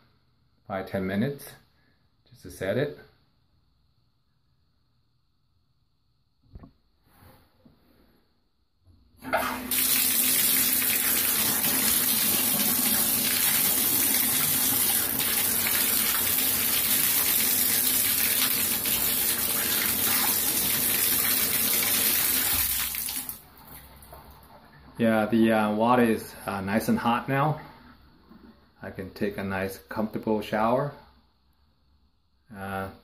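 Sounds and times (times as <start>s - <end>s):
water running into bathtub: 9.2s - 25.0s.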